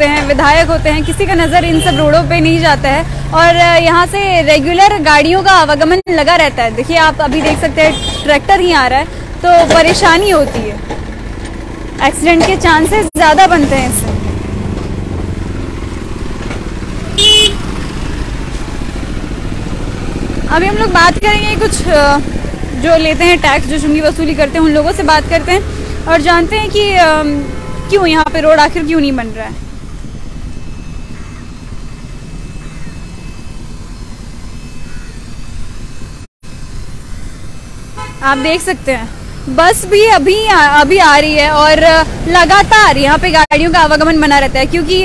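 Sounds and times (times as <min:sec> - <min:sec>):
motorcycles passing: 0:00.0 - 0:45.0
vehicle engine rumbling: 0:00.0 - 0:45.0
vehicle horn toot: 0:01.0 - 0:02.3, 0:07.8 - 0:08.4, 0:17.1 - 0:17.8, 0:37.8 - 0:38.7.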